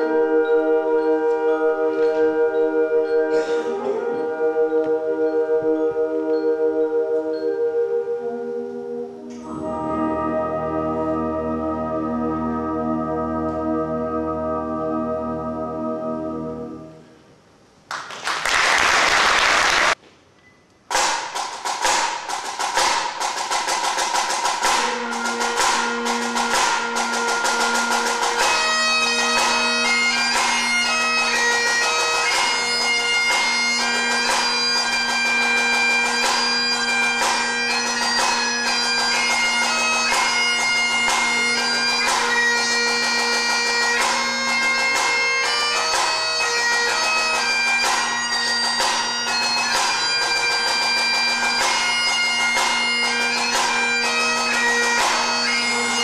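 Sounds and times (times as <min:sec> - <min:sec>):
bagpipes playing: 0:00.0 - 0:17.0, 0:24.4 - 0:56.0
snare drums: 0:20.9 - 0:30.7, 0:47.8 - 0:53.8.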